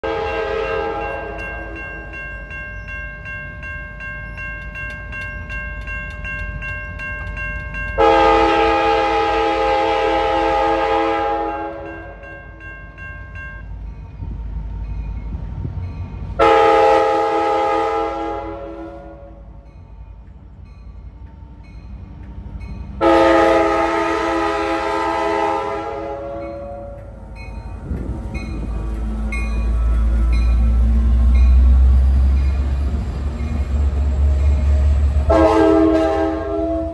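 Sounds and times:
locomotive air horn blasts: 0:00.0 - 0:01.5, 0:08.0 - 0:12.2, 0:16.4 - 0:19.5, 0:23.0 - 0:27.0, 0:35.2 - 0:36.9
low rumble of train: 0:00.0 - 0:36.9
crossing bell ringing rapidly: 0:00.2 - 0:08.6, 0:11.4 - 0:14.2, 0:26.3 - 0:34.8.

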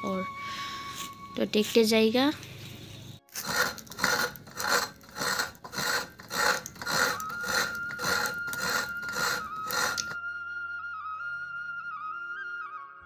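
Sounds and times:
flute melody: 0:00.0 - 0:01.5, 0:09.5 - 0:13.0
coconut being grated: 0:03.3 - 0:10.2.

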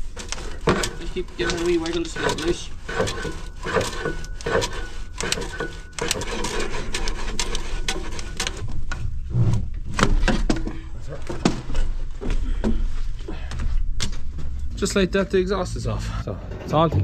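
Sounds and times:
metal pipe knocking and scraping: 0:00.0 - 0:14.8, 0:16.3 - 0:17.0.

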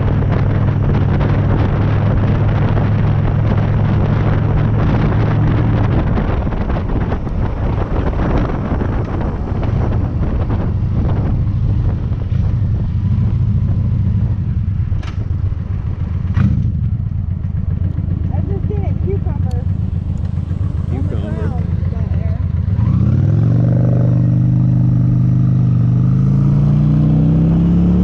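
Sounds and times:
motorcycle engine running: 0:00.0 - 0:28.0
wind noise on microphone: 0:00.0 - 0:28.0.

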